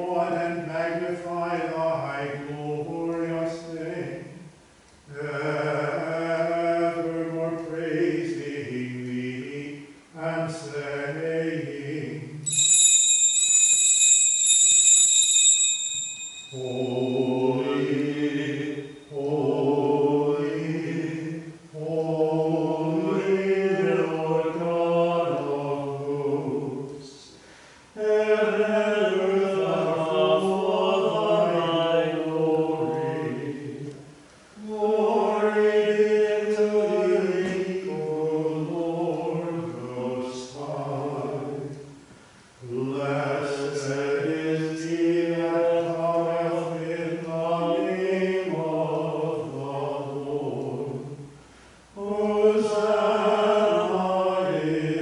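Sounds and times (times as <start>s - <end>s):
man chanting: 0.0s - 4.4s, 16.6s - 27.3s, 28.0s - 33.9s, 34.6s - 41.8s
small bells ringing: 12.5s - 18.0s.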